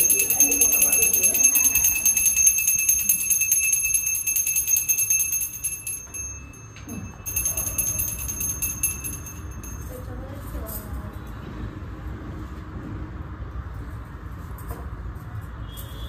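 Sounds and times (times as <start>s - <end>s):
hand bell rung rapidly: 0.0s - 10.2s.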